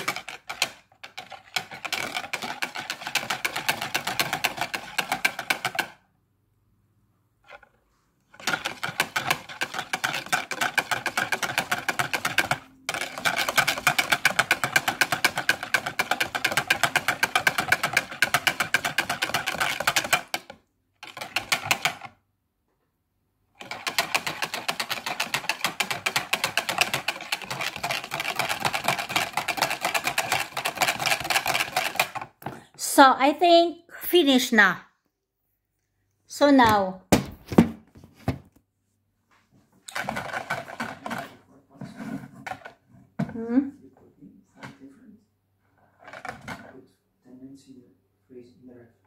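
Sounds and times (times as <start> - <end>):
wire whisk rattling in bowl: 0.0 - 6.0, 8.4 - 22.1, 23.6 - 32.2, 39.9 - 41.3.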